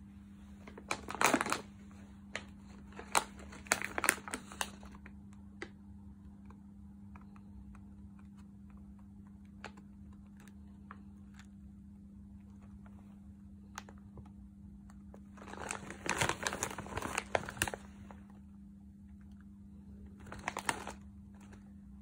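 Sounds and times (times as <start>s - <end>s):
plastic chip bag crinkling: 0.6s - 5.2s, 15.1s - 18.4s, 20.1s - 21.7s.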